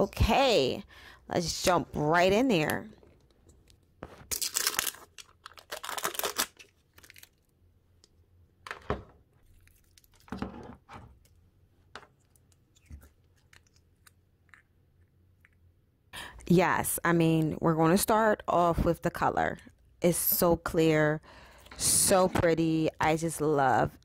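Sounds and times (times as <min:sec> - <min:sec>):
plastic film crinkling and tearing: 0:04.2 - 0:07.5.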